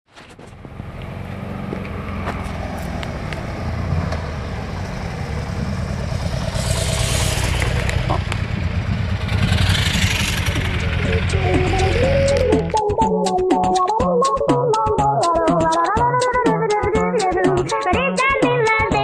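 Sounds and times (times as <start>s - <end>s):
motorcycle engine running: 0.4s - 12.9s
hissing rush: 5.9s - 12.3s.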